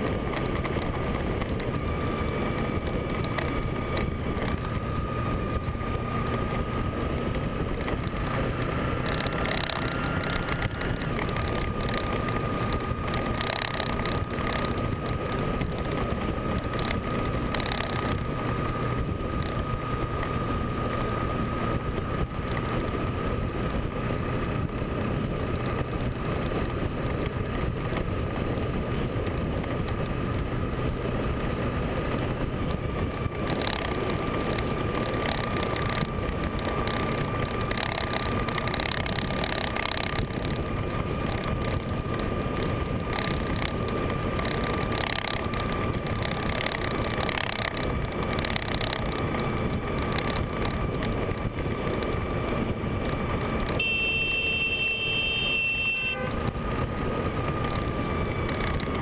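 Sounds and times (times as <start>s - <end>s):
wind rushing on microphone: 0.0s - 53.8s
motorcycle engine drone: 0.0s - 59.0s
thin high whine: 53.8s - 56.5s.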